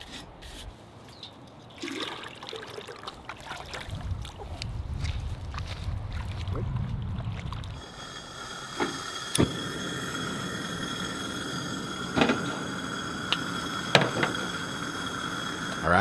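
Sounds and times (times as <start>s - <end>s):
water sloshing: 1.6s - 4.6s
camp stove burner hissing: 7.8s - 16.0s.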